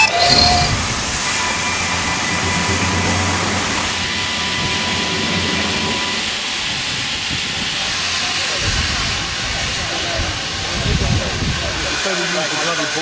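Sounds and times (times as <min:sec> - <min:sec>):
steam locomotive hissing: 0:00.0 - 0:13.0
low rumble: 0:00.2 - 0:09.8.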